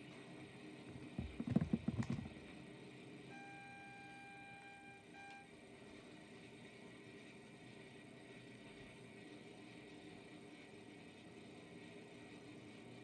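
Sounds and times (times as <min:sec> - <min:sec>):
clatter of knocks and thumps: 0:00.9 - 0:02.4.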